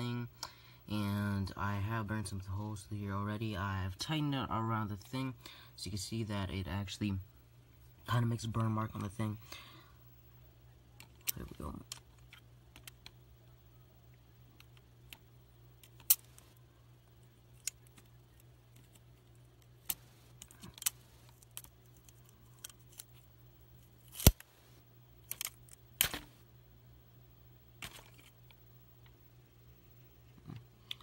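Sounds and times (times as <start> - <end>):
faint low hum: 0.0 - 31.0
electric arcs snapping and crackling: 25.3 - 26.4.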